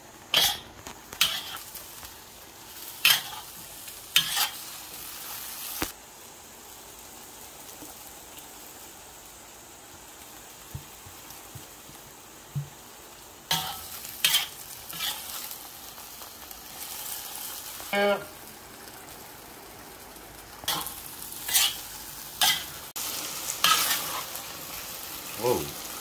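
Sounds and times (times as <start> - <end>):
food sizzling in a wok: 0.0 - 26.0
metal spatula scraping wok: 0.3 - 1.6, 3.0 - 4.7, 13.5 - 15.5, 20.7 - 22.8, 23.6 - 24.4.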